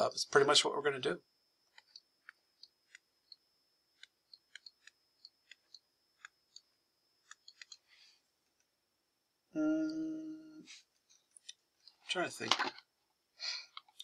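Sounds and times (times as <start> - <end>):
steady hum: 0.0 - 14.0
stylus tapping tablet screen: 1.7 - 7.9.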